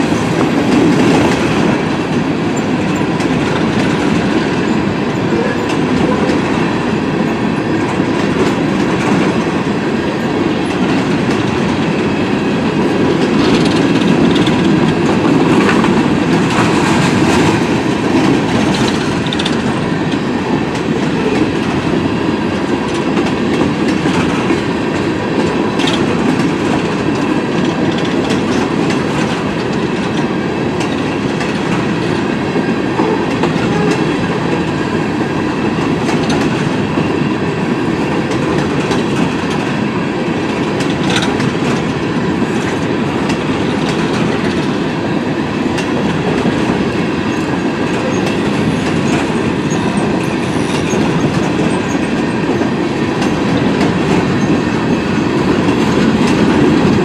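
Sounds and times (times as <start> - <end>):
train rumbling past: 0.0 - 57.0
wheels clicking over rails: 7.4 - 22.0.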